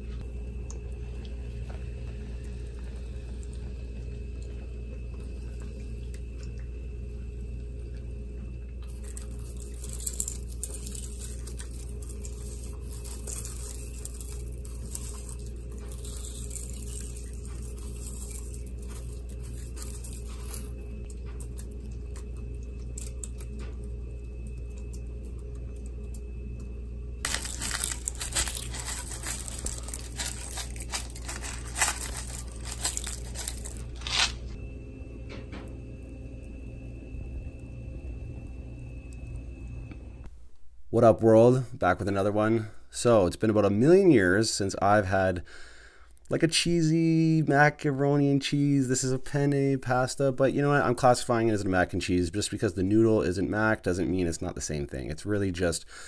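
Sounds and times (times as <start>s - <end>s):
low hum: 0.0s - 41.5s
crumb topping crunching: 8.8s - 25.6s, 27.2s - 34.6s.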